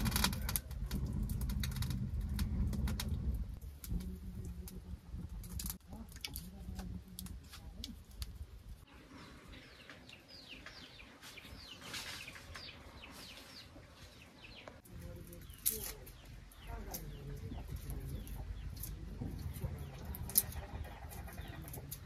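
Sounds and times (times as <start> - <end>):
birds chirping: 8.8 - 22.0.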